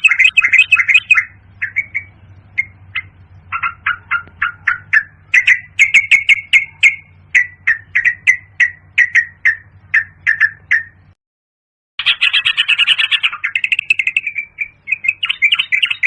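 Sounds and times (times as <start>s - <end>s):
faint low hum: 0.0s - 11.1s
bird chirping: 0.0s - 11.2s, 12.0s - 16.0s.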